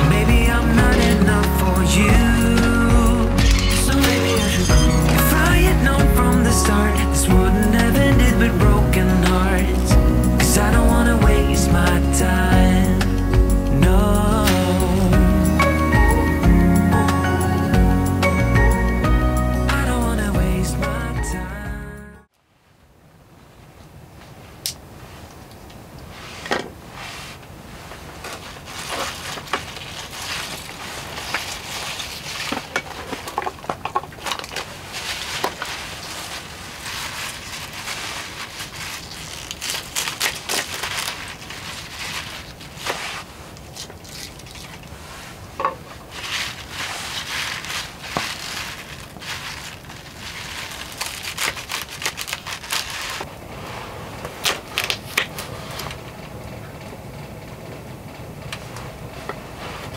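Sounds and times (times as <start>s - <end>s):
vegetables rustling: 0.0s - 13.2s, 26.0s - 56.1s.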